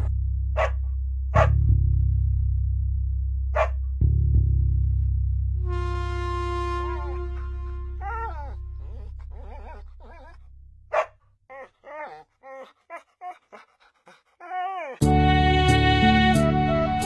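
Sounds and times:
dog whimpering and whining: 0:08.0 - 0:10.4, 0:11.5 - 0:13.7, 0:14.4 - 0:15.0
dog yelp: 0:08.0 - 0:13.6
background music: 0:15.0 - 0:17.0.

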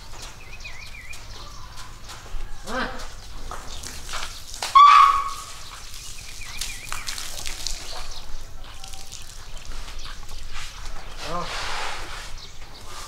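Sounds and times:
elephant trumpeting: 0:04.7 - 0:05.6.

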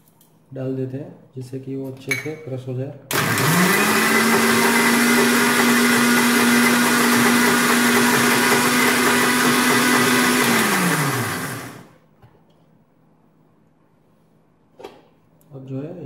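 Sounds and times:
mixer grinder running: 0:03.1 - 0:12.0.

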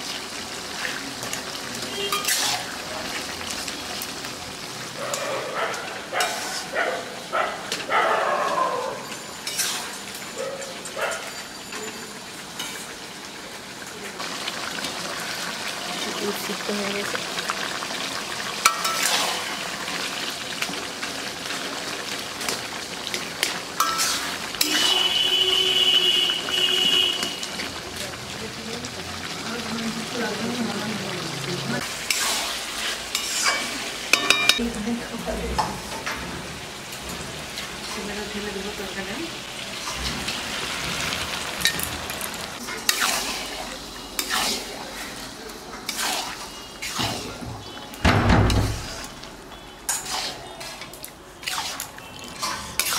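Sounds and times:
chicken sizzling in a pan: 0:00.0 - 0:52.9
spatula scraping a pan: 0:02.0 - 0:02.7, 0:06.2 - 0:06.7, 0:09.4 - 0:10.1, 0:18.6 - 0:19.6, 0:23.4 - 0:25.2, 0:32.0 - 0:34.5, 0:42.6 - 0:45.2, 0:45.8 - 0:47.4, 0:48.5 - 0:52.9.

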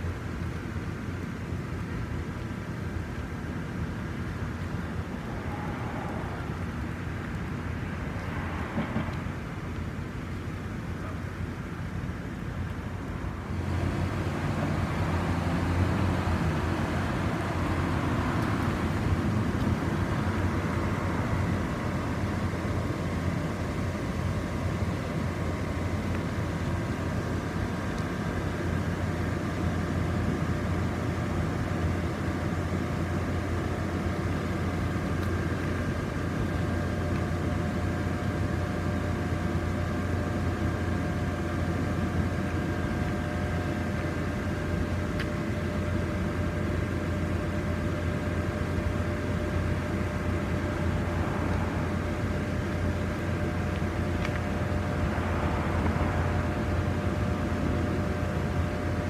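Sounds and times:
blower fans humming: 0:00.0 - 0:59.0
faint whining tones: 0:04.4 - 0:09.8.

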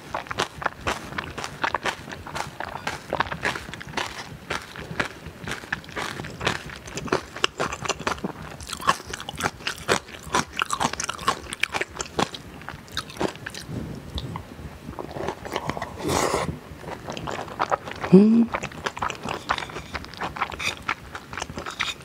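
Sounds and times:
wet chewing: 0:00.0 - 0:22.0
crisp crunching: 0:00.1 - 0:13.6.

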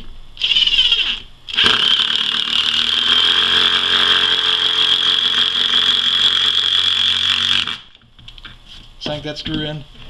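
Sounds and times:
impact driver driving screw into wood: 0:00.4 - 0:07.8.

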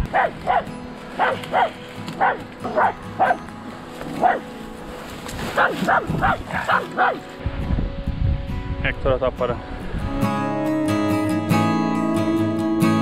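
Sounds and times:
dog barking sharply: 0:01.2 - 0:03.4, 0:05.6 - 0:07.2.

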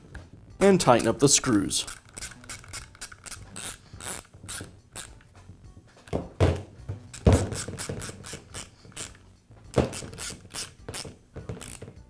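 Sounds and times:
ratcheting hand driver clicking: 0:00.8 - 0:05.3, 0:07.1 - 0:09.2, 0:09.8 - 0:12.0.

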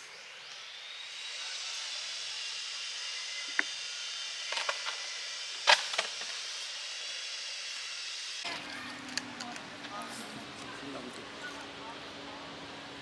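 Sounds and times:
steady high hiss: 0:00.0 - 0:08.5.

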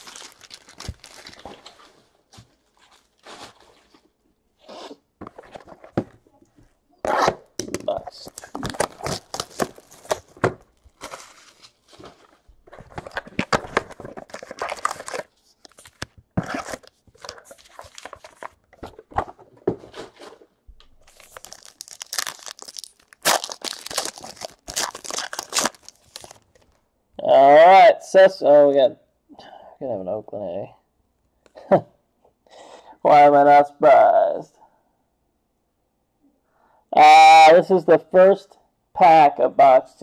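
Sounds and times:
foil wrapper tearing and crinkling: 0:00.0 - 0:01.7, 0:08.4 - 0:11.8, 0:14.1 - 0:18.4, 0:21.0 - 0:26.7.

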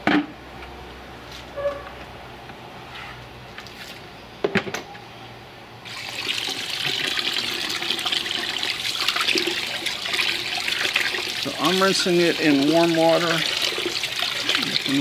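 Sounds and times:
hose spraying into bucket: 0:05.9 - 0:15.0.

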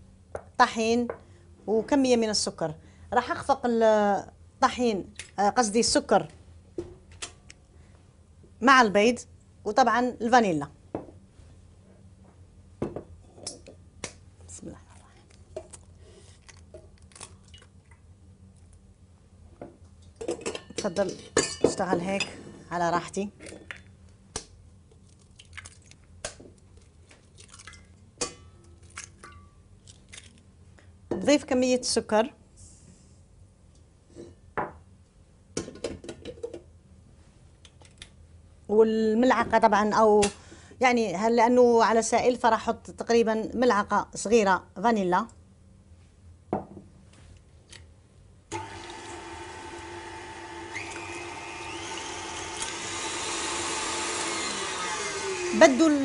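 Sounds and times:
stand mixer motor whine: 0:48.5 - 0:56.0.

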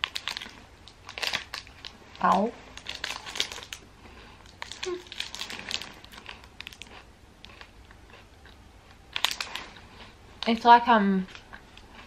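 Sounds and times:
crunchy bar being chewed: 0:00.0 - 0:02.0, 0:02.7 - 0:10.5
foil wrapper crinkling: 0:00.0 - 0:07.0, 0:09.1 - 0:09.8.

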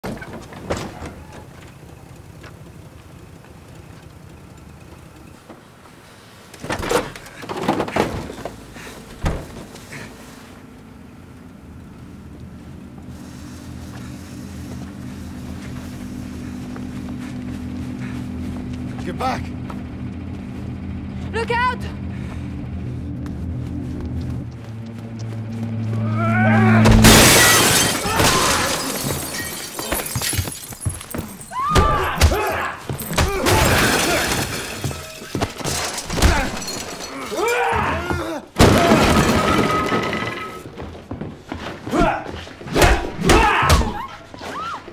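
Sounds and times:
scuffling: 0:12.8 - 0:21.3
broken glass crunching: 0:26.9 - 0:31.5, 0:33.0 - 0:37.6
pained grunts: 0:36.1 - 0:38.9, 0:41.9 - 0:44.3.

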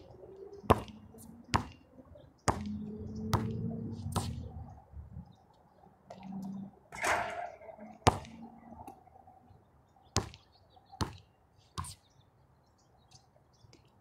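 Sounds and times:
ball bouncing on court: 0:00.7 - 0:00.9, 0:01.5 - 0:01.8, 0:02.5 - 0:04.4, 0:08.0 - 0:09.0, 0:10.2 - 0:10.4, 0:11.0 - 0:11.2.

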